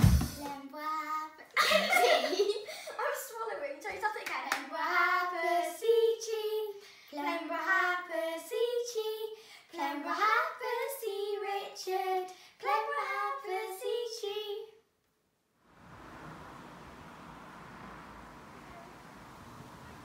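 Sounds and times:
young girls singing: 0.0 - 2.4, 4.2 - 14.8.

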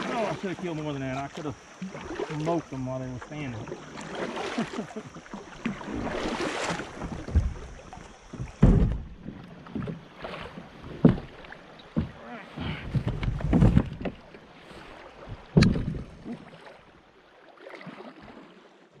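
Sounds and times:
water rushing around kayak: 0.0 - 19.0
knocks and bumps: 8.3 - 10.0, 11.0 - 14.2, 15.5 - 16.1.

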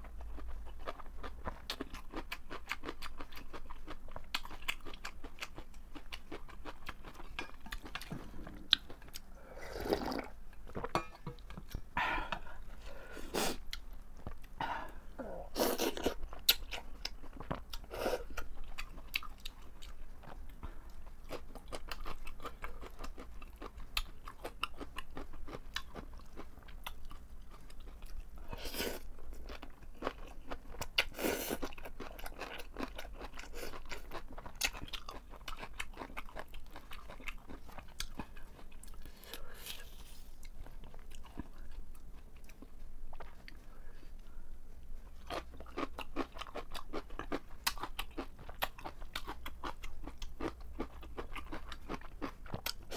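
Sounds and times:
wet chewing and crunching: 0.0 - 11.9, 15.8 - 43.6, 45.0 - 52.9
noodle slurps: 9.5 - 10.4.

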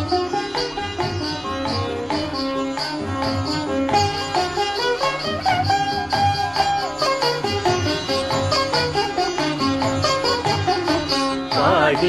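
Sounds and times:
light high percussion: 0.0 - 12.0
steady drum beat: 11.5 - 12.0.

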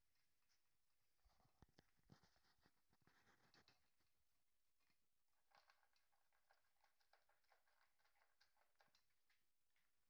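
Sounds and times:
kibble clicking in steel bowl: 5.4 - 10.0.

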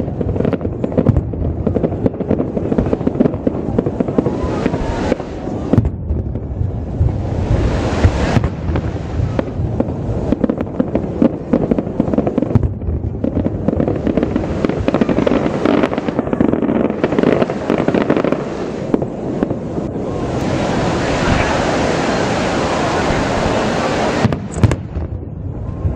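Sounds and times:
low rumble: 0.0 - 12.0, 19.0 - 25.9
fireworks crackling and popping: 0.0 - 25.9
loud firework bang: 4.1 - 10.6, 24.1 - 25.2.

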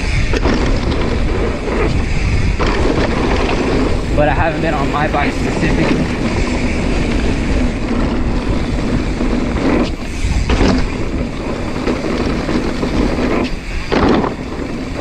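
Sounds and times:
bike tyres rolling over dirt: 0.0 - 15.0
wind rushing over microphone: 0.0 - 15.0.

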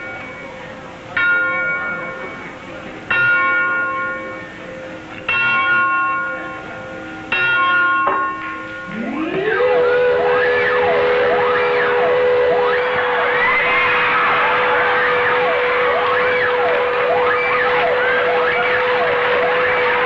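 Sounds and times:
large bell ringing: 0.0 - 20.0
siren-like rising tone: 8.9 - 20.0.

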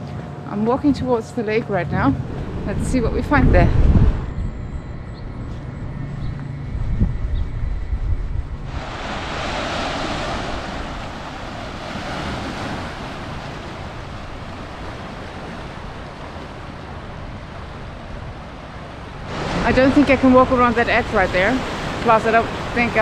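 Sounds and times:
wind rumbling on microphone: 0.7 - 23.0
waves washing onto shore: 8.7 - 23.0.

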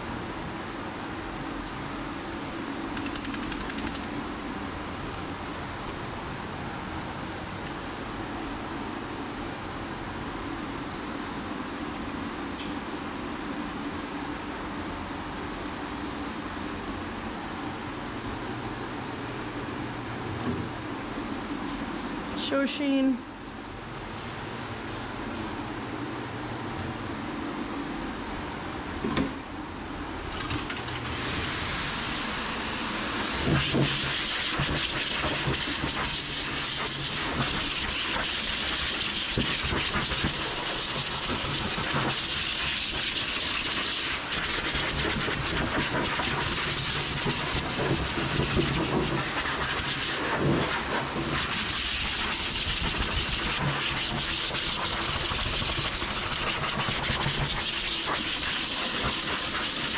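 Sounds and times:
dog grooming dryer blowing air: 0.0 - 4.2, 30.9 - 59.9.

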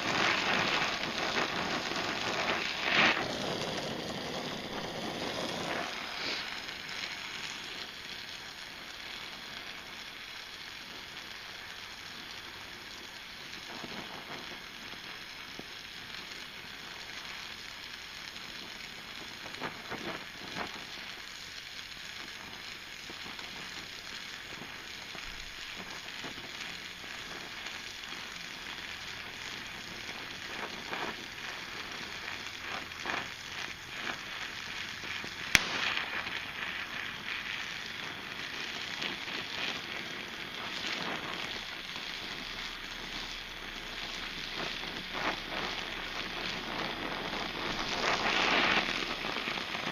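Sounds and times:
welding torch flame hissing: 0.0 - 49.9
sharp pop: 2.4 - 3.4, 35.5 - 36.3.

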